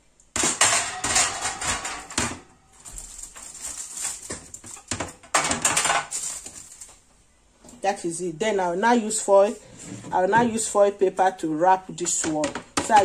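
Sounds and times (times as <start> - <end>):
aluminium foil crinkling: 1.2 - 7.1.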